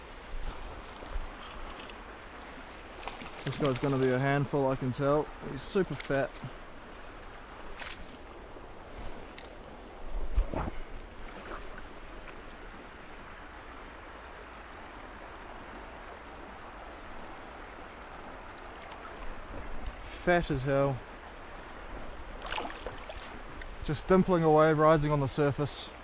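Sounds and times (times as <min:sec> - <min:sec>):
stream running over stones: 0:00.0 - 0:26.0
water splashing: 0:10.3 - 0:12.8, 0:18.5 - 0:20.3, 0:22.3 - 0:23.6.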